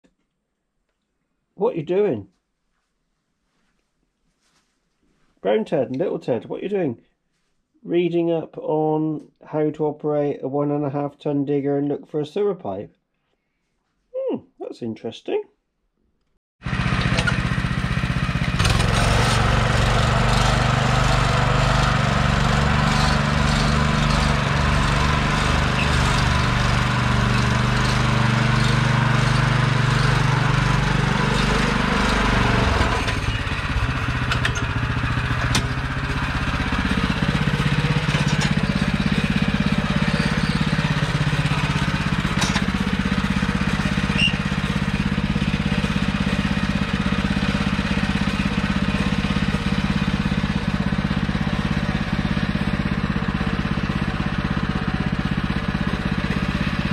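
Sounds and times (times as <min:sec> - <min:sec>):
turf cutter engine droning: 0:16.6 - 0:56.9.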